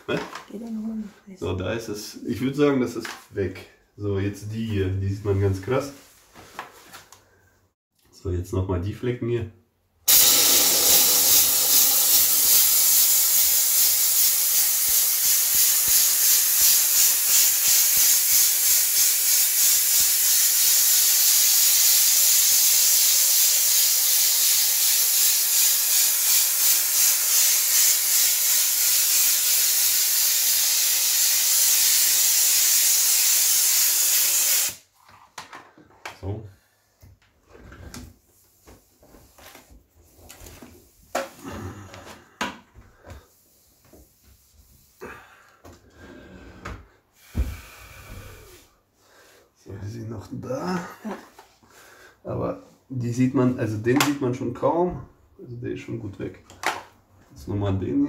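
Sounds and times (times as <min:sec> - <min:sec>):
steam jet hissing: 0:10.1 - 0:34.8.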